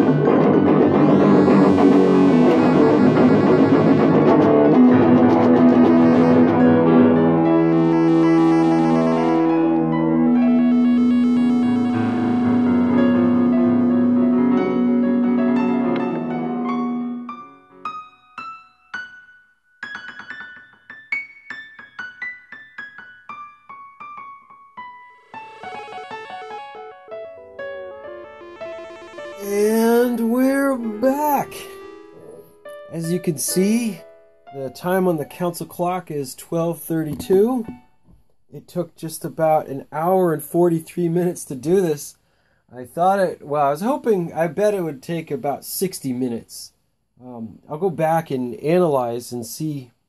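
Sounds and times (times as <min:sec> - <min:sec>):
bass: 0:00.0 - 0:17.4
guitar playing chords: 0:00.0 - 0:17.9, 0:25.2 - 0:35.4
electric piano notes: 0:00.0 - 0:19.2, 0:19.8 - 0:35.8.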